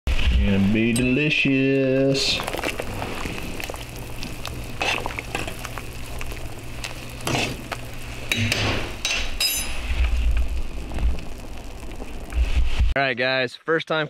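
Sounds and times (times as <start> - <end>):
steady low hum: 0.2 - 13.0
metal spoon clinking in pot: 8.3 - 9.8
low rumble: 9.6 - 13.0.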